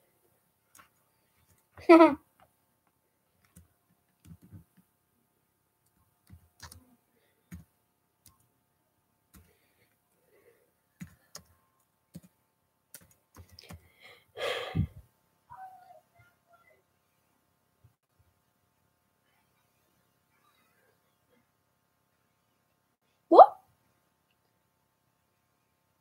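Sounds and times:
laptop keys clicking: 6.2 - 6.8, 11.0 - 12.3, 12.9 - 13.9.

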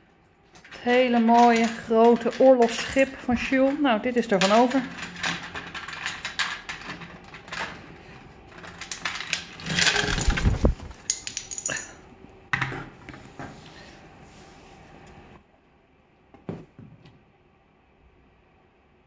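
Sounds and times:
plastic bricks clicking and clattering: 0.6 - 11.9.

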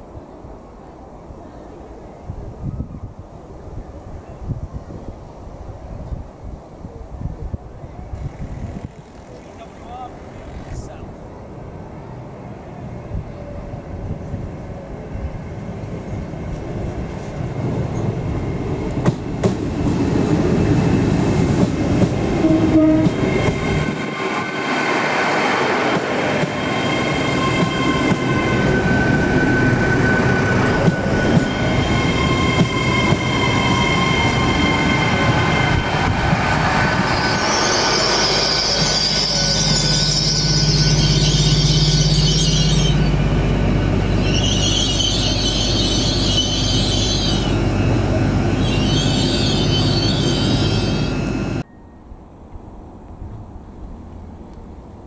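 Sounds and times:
train passing at speed: 0.0 - 55.0
wheels squealing whine: 15.2 - 52.1.

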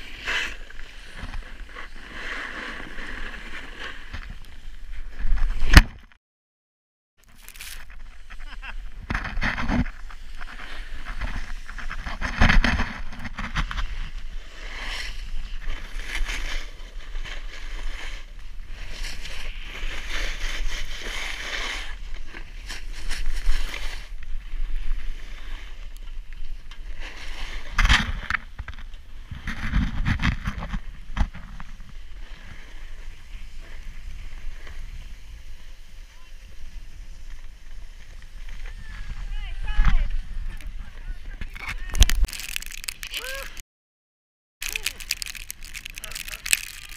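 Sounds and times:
snowboard scraping over snow: 0.0 - 4.8, 8.0 - 27.8, 30.5 - 41.0
snowboard bumps: 7.3 - 25.2.

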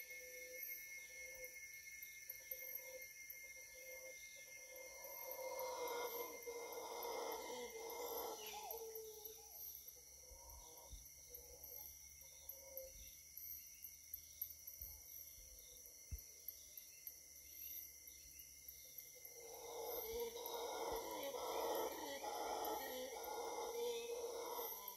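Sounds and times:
high insect chirp: 0.0 - 24.9
insect chorus droning: 0.0 - 24.9
howler monkeys roaring: 5.3 - 9.4, 19.4 - 24.9.

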